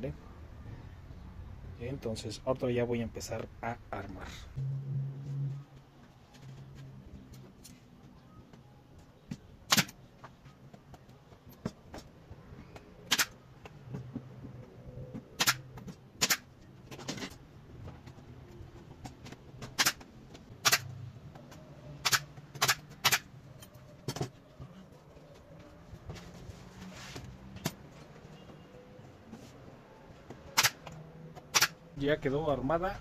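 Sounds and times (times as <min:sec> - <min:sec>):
pneumatic nail gun firing: 0:13.1 - 0:13.4, 0:15.4 - 0:15.6, 0:16.2 - 0:16.4, 0:19.8 - 0:20.0, 0:20.6 - 0:20.9, 0:22.0 - 0:23.2, 0:31.5 - 0:31.8.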